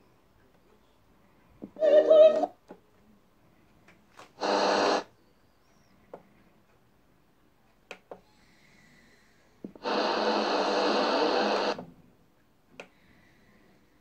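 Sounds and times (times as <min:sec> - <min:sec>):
radio static hiss: 0:04.4 - 0:05.1, 0:09.7 - 0:11.9
faint whistle: 0:05.2 - 0:06.0.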